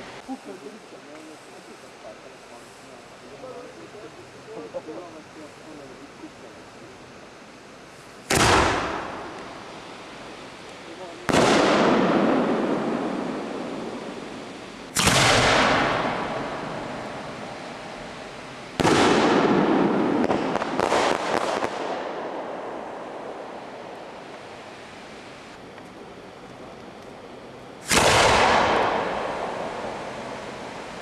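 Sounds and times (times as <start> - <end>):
firework shells booming: 8.2 - 9.8, 11.1 - 24.8, 27.8 - 31.0.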